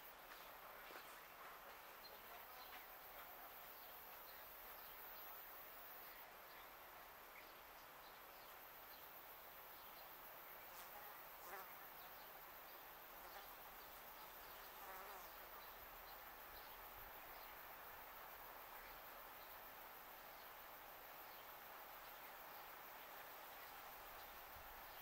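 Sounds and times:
flying insect buzzing: 10.6s - 12.5s, 13.2s - 15.8s.

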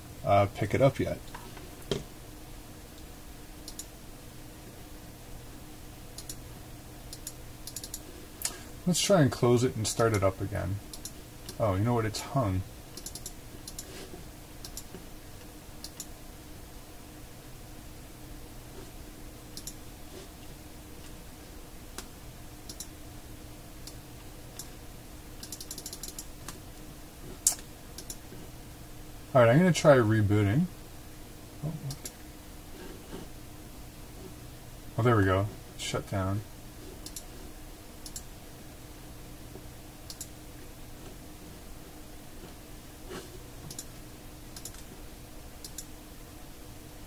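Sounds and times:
faint steady hum: 0.0s - 47.0s
keyboard typing: 7.1s - 8.0s, 12.9s - 13.9s, 25.4s - 26.3s, 44.6s - 44.8s.

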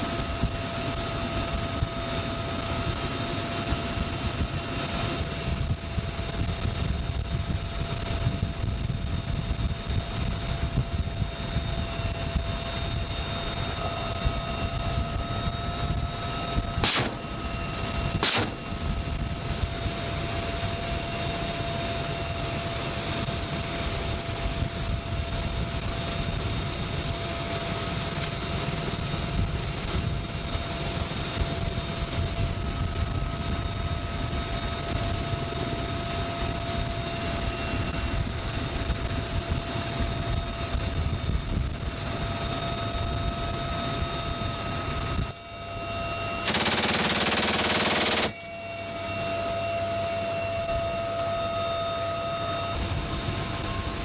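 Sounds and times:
helicopter rotor and engine rumble: 0.0s - 54.0s
high turbine whine: 0.0s - 54.0s
sharp cracks: 16.8s - 17.4s, 18.2s - 18.8s, 46.5s - 48.4s.

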